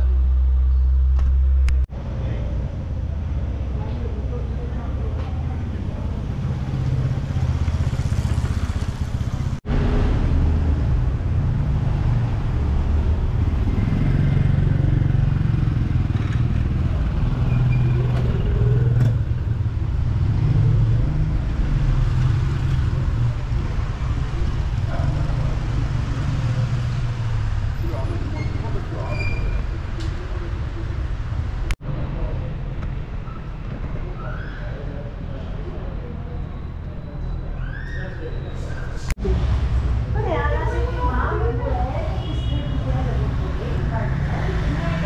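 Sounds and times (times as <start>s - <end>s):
cars passing: 0.0s - 34.1s, 38.6s - 45.0s
low rumble of traffic: 0.0s - 45.0s
motorcycles passing: 2.0s - 32.3s, 39.0s - 45.0s.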